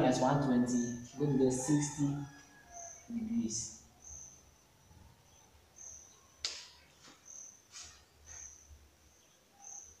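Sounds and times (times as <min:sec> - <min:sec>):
faint insect chirping: 0:00.1 - 0:10.0.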